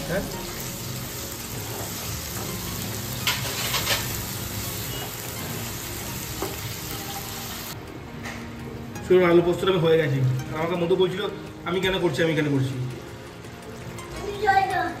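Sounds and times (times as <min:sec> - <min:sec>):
potatoes sizzling in a wok: 0:00.0 - 0:07.8.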